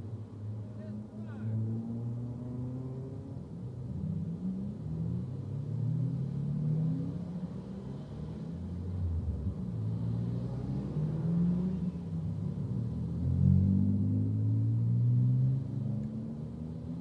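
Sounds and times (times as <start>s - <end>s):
car engine accelerating: 4.3s - 17.0s.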